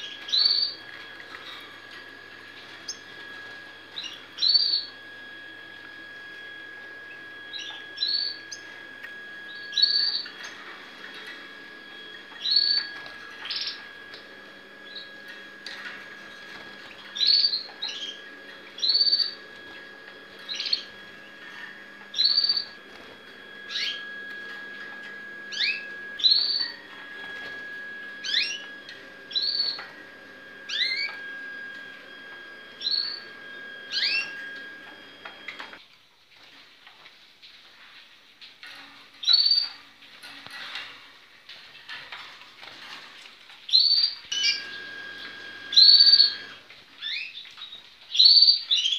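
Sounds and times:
canaries chirping: 0:00.0 - 0:01.6, 0:02.5 - 0:04.9, 0:07.5 - 0:11.3, 0:14.9 - 0:30.0, 0:30.6 - 0:31.9, 0:32.8 - 0:35.8, 0:43.7 - 0:47.4
faint steady high tone: 0:00.0 - 0:35.8.

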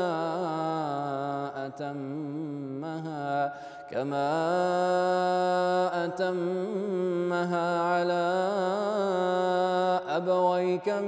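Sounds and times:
man reciting melodically: 0:00.0 - 0:11.0
man breathing: 0:03.5 - 0:03.9.

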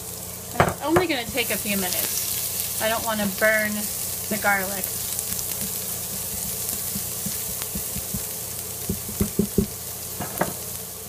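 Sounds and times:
shallot and garlic sizzling: 0:00.0 - 0:11.0
spoon stirring in pot: 0:05.2 - 0:08.3.

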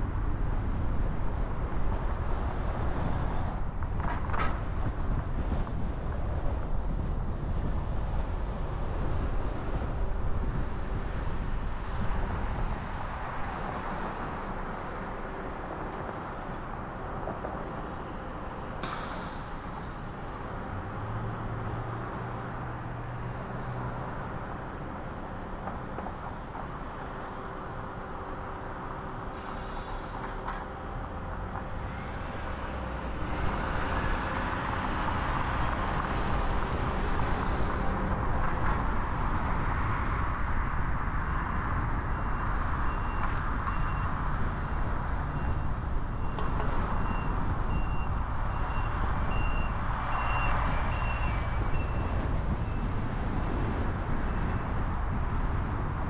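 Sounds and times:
traffic engine and tyre noise: 0:00.0 - 0:56.0
short sharp hisses: 0:18.8 - 0:20.0, 0:29.4 - 0:30.4.

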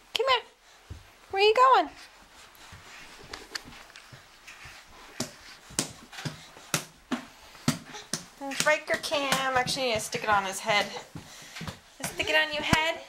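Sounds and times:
soft rustling on carpet: 0:00.5 - 0:06.7
hands slapping on wooden floor: 0:02.6 - 0:12.9.

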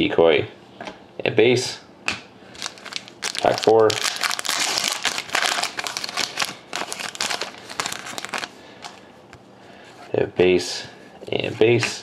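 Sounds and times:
wrapper crinkling torn open: 0:02.6 - 0:09.0.

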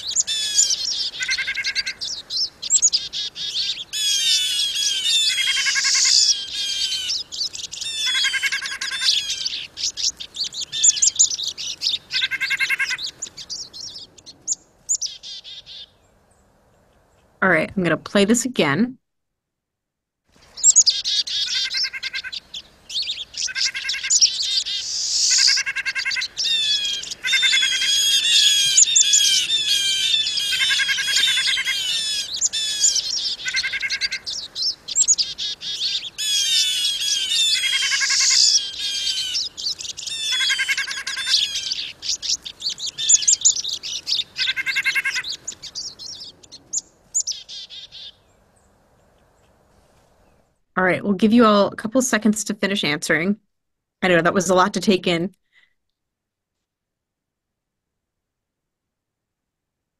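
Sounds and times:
siskins twittering: 0:00.0 - 0:15.9, 0:20.6 - 0:48.2
short nasal bird calls: 0:00.0 - 0:16.1, 0:20.4 - 0:48.3
dense bird chirping: 0:00.0 - 0:17.2, 0:20.4 - 0:49.6.

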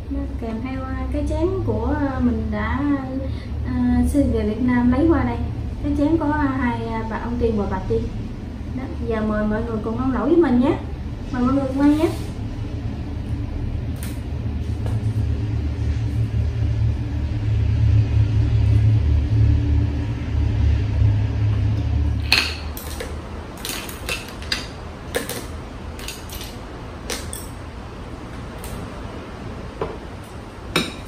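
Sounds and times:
low rumble: 0:00.0 - 0:23.6.

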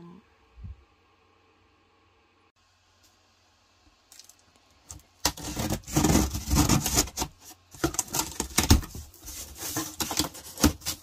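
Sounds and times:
cardboard flaps tearing open: 0:05.2 - 0:11.0.

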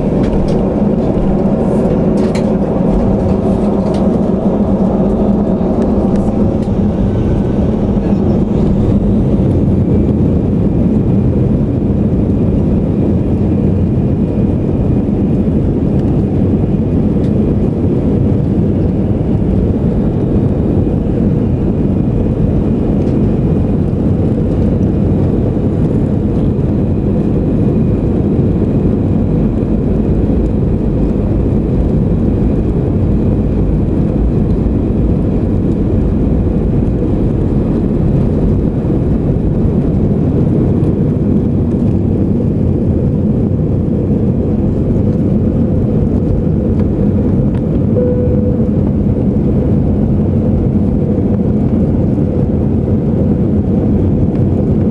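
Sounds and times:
faint high whine: 0:00.0 - 0:10.4, 0:47.9 - 0:49.9
jet engine roar: 0:00.0 - 0:54.9.

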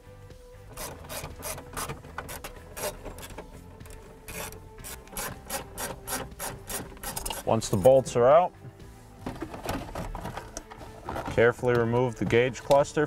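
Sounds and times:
hand ratchet clicking: 0:00.7 - 0:07.5.

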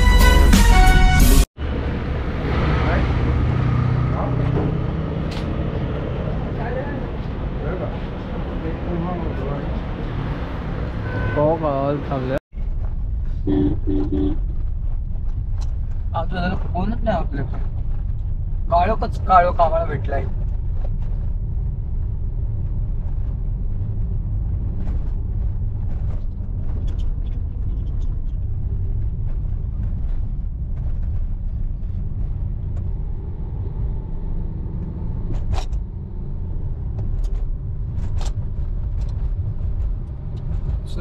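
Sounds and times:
road and engine rumble: 0:00.0 - 0:41.0.

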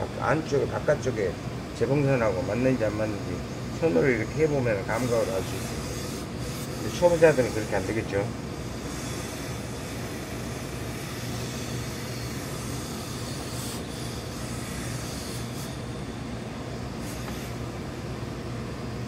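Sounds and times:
steam iron hissing: 0:17.0 - 0:17.8.

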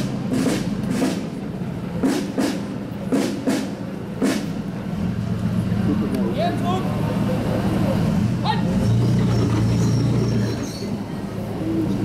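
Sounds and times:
marching drums beating: 0:00.0 - 0:04.6.

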